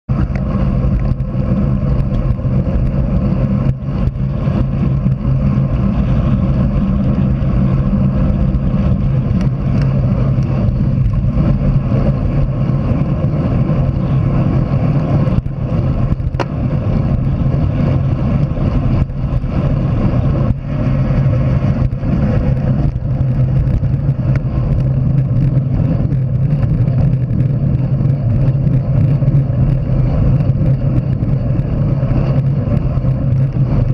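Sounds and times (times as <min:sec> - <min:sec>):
wind rushing over microphone: 0:00.0 - 0:33.9.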